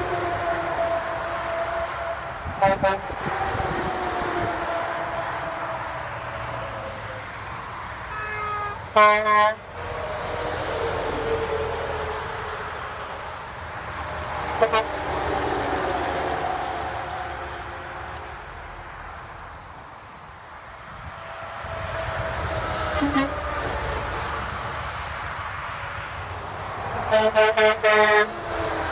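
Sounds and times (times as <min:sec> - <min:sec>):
highway traffic rumble: 0:00.0 - 0:28.9
truck air horn blasts: 0:02.6 - 0:03.3, 0:08.1 - 0:09.7, 0:14.6 - 0:15.0, 0:21.6 - 0:23.7, 0:27.1 - 0:28.6.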